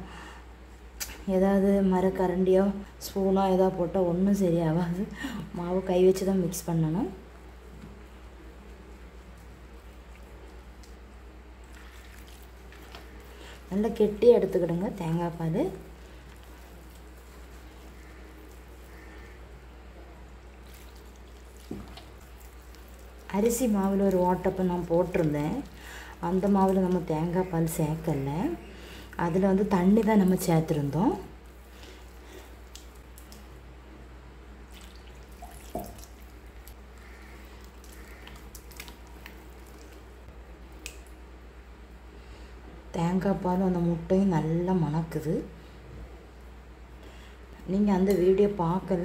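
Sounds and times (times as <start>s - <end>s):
steady low hum: 0.0s - 49.0s
hand mixing dough in bowl: 5.7s - 33.6s, 34.6s - 41.0s
liquid pouring from cup: 34.7s - 40.2s.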